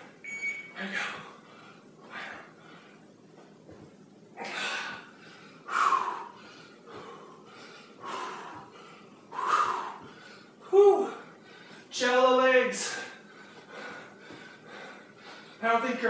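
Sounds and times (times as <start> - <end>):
man breathing hard: 0.8 - 3.2, 4.4 - 11.9, 12.8 - 15.6.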